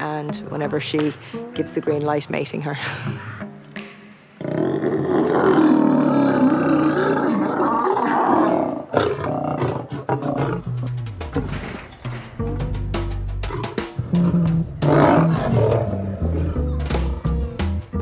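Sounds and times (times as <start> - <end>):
lions snarling and growling: 4.4 - 11.1, 13.3 - 16.8.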